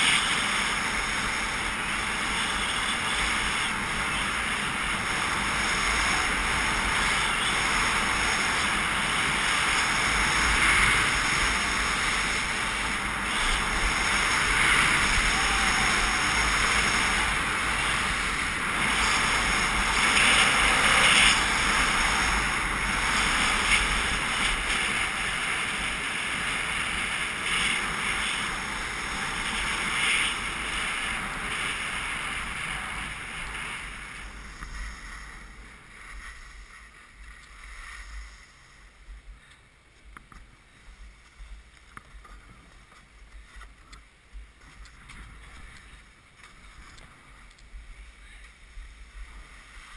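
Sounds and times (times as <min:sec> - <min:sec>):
wind rushing past microphone: 0:00.0 - 0:39.5
skis scraping over snow: 0:00.0 - 0:49.9.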